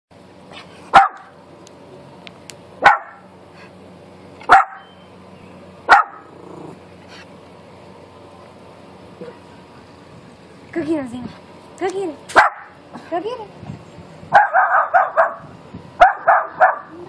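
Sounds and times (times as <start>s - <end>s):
dog barking sharply: 1.0s - 1.3s, 2.8s - 3.2s, 4.4s - 4.9s, 5.9s - 6.2s, 12.3s - 12.8s, 14.4s - 16.9s.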